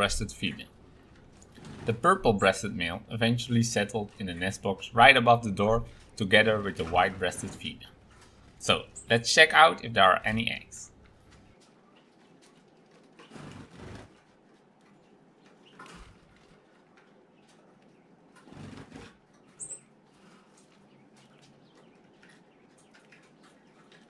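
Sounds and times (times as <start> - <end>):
bird wings fluttering: 11.0 - 17.6.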